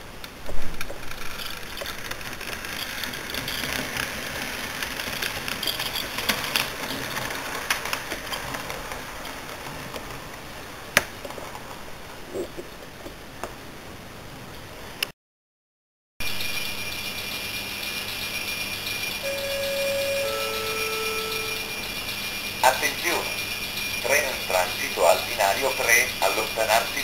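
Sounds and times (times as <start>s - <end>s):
model train rattling on rails: 0.8s - 10.6s, 16.2s - 27.0s.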